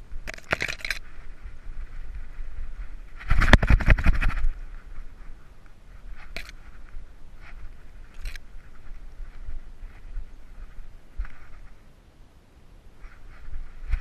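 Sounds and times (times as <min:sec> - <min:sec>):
camera rattling in its mount: 0:00.2 - 0:01.2, 0:03.2 - 0:04.5, 0:06.2 - 0:06.6, 0:08.1 - 0:08.5.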